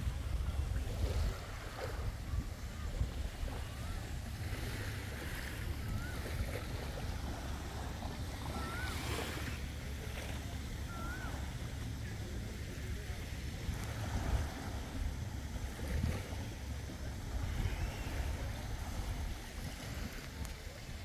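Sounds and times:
sea noise: 0.0s - 21.0s
wind buffeting microphone: 0.0s - 21.0s
short wavering whistles: 8.4s - 9.4s, 10.9s - 11.5s.

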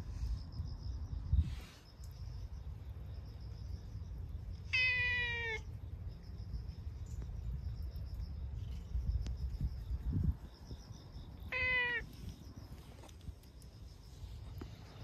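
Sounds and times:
cat meowing: 4.7s - 5.7s, 11.5s - 12.1s.

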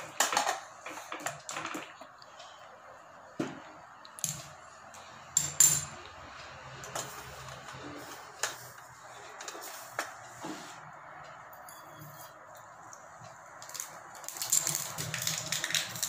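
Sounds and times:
steel utensils clinking: 5.3s - 6.1s.

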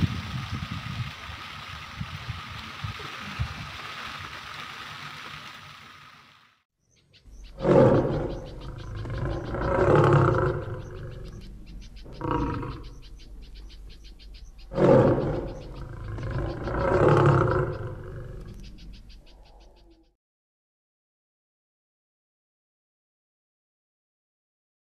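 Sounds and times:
lion roaring: 7.5s - 13.1s, 14.7s - 18.6s.

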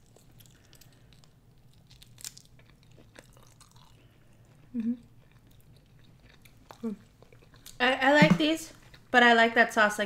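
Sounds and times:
chewing with wet mouth clicks: 0.0s - 7.8s
person humming: 4.8s - 5.0s.

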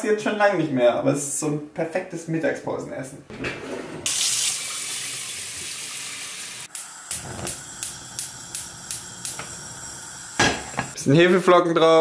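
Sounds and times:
tap water running into metal pot: 4.1s - 11.0s
gas flame rushing: 6.6s - 11.0s
spark igniter clicking: 6.7s - 11.0s.

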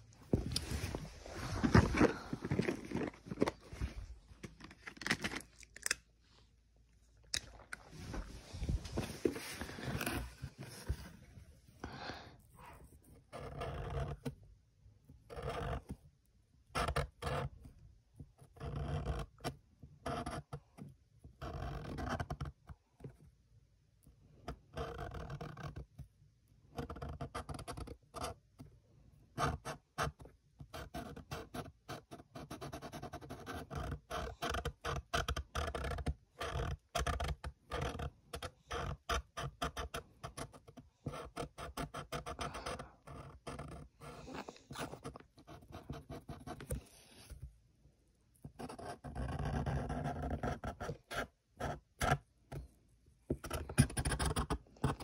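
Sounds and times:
marker scratching on paper: 30.7s - 47.4s, 48.5s - 52.2s.

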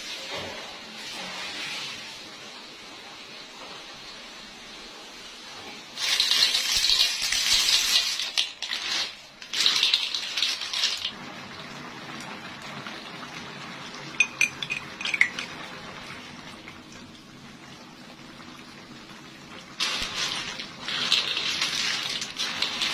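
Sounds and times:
sauce sizzling: 6.0s - 22.9s.

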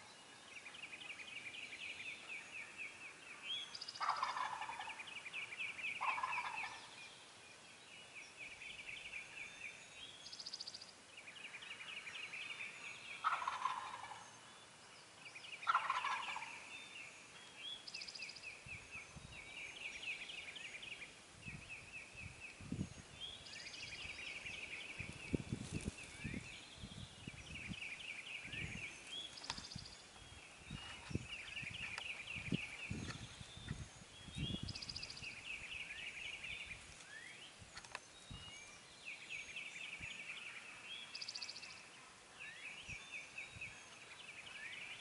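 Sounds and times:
turkeys gobbling: 4.0s - 5.0s, 6.0s - 6.9s, 13.2s - 14.2s, 15.6s - 16.6s.

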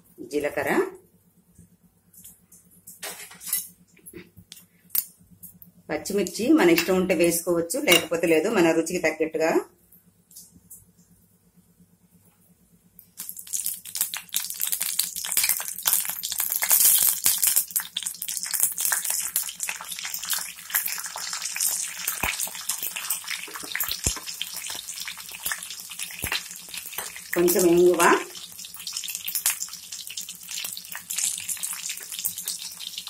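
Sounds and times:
hot oil sizzling and popping: 13.0s - 33.0s.

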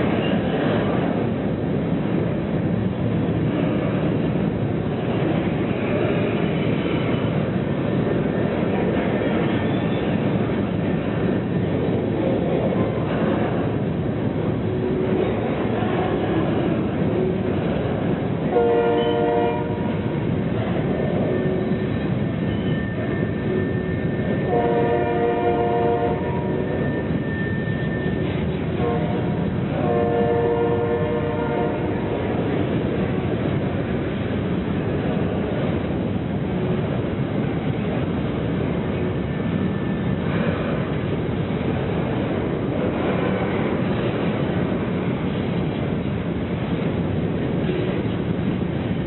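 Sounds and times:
train rumbling: 0.0s - 49.0s
locomotive air horn: 18.5s - 19.8s, 24.5s - 26.6s, 28.8s - 32.0s.

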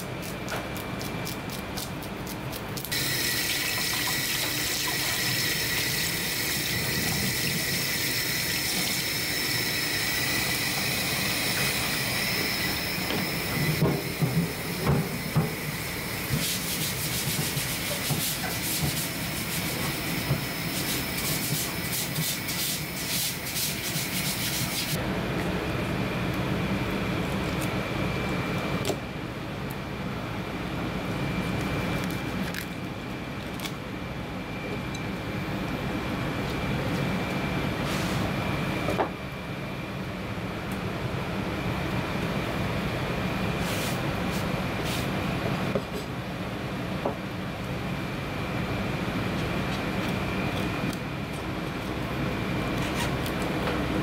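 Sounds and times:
tap water running: 3.0s - 11.9s.

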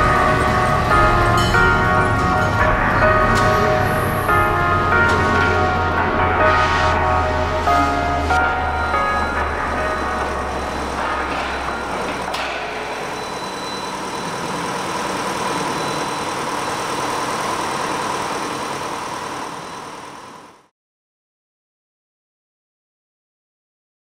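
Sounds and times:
background music: 0.0s - 14.6s
processing line machinery: 0.0s - 20.7s.

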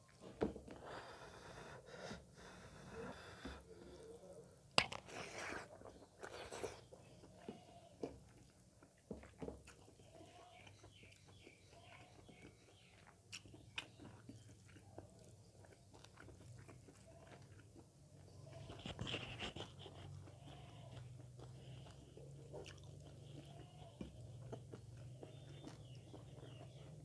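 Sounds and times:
chewing: 2.4s - 27.0s
fingers squishing wet food: 3.3s - 27.0s.

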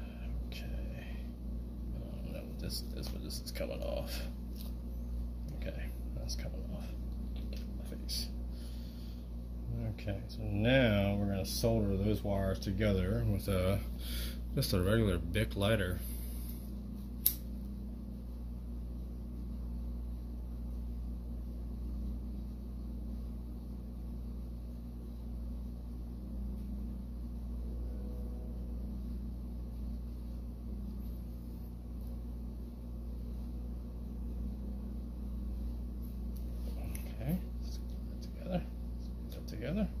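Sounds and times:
lighter flame hum: 15.7s - 39.5s
lighter click: 17.2s - 17.5s.

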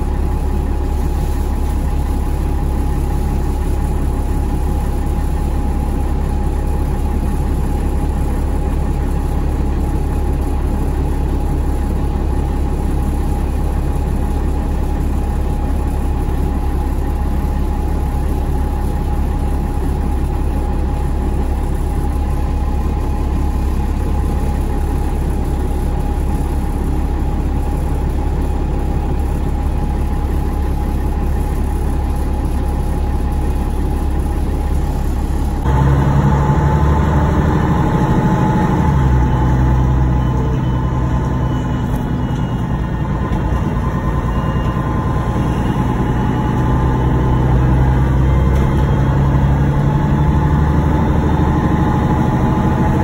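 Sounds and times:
bus engine droning: 0.0s - 53.0s.

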